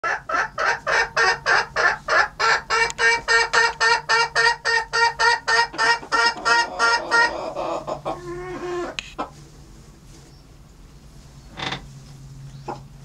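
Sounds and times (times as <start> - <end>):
hen clucking: 0.0 - 9.4, 12.5 - 13.0.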